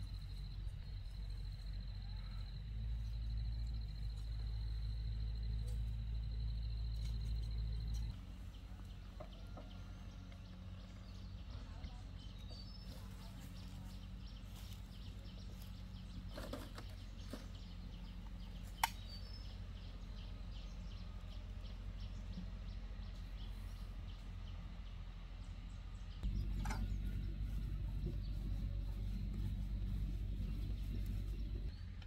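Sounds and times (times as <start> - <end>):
engine humming with fast ticking: 0.0 - 32.0
sharp click: 18.7 - 19.3.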